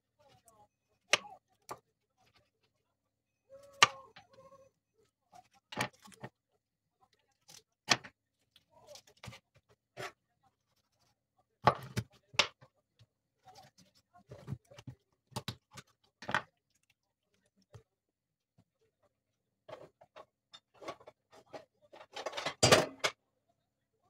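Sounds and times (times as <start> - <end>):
knife chopping on wooden board: 11.6 - 12.5.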